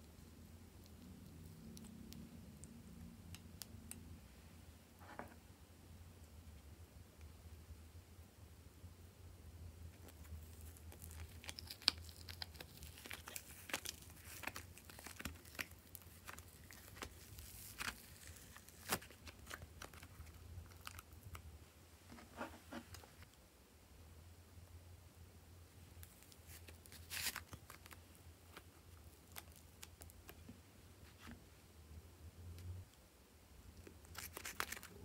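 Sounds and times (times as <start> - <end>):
crackling and crinkling: 0.0 - 4.2, 9.8 - 23.4, 25.7 - 31.6, 33.7 - 35.0.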